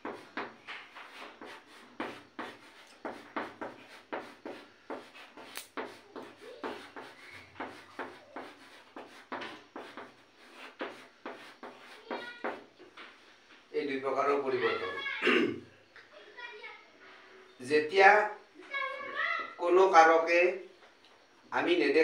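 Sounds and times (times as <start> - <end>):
chalk writing on blackboard: 0.0 - 13.2.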